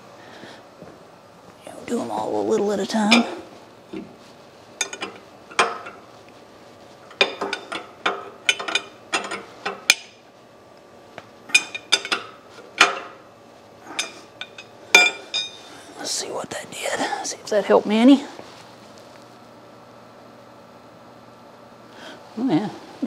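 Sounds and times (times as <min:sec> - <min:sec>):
steel wrenches clinking: 0:04.8 - 0:06.0, 0:07.1 - 0:09.5, 0:14.0 - 0:15.6.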